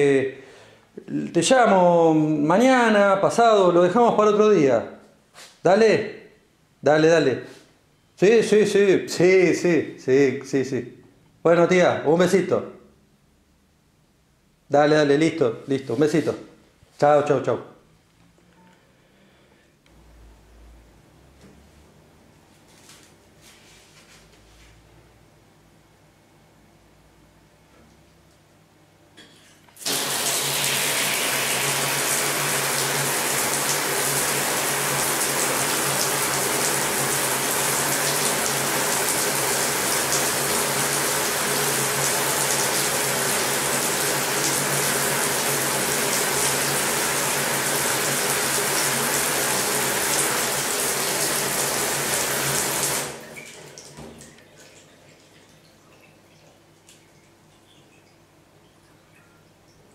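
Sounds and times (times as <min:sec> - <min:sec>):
shower water spraying: 0:29.8 - 0:53.8.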